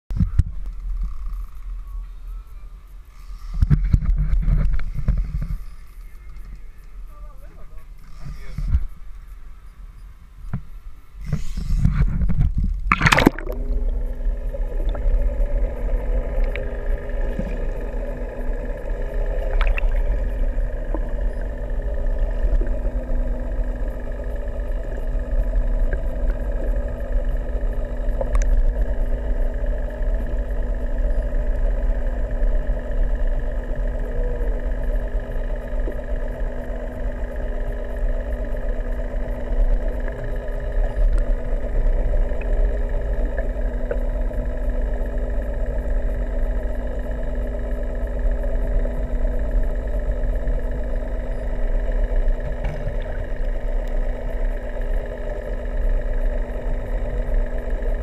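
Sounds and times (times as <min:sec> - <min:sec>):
boat engine drone underwater: 0:00.1 - 0:58.0
water rumbling against camera: 0:11.2 - 0:29.7, 0:51.6 - 0:55.1
camera splashing into water: 0:12.9 - 0:13.7.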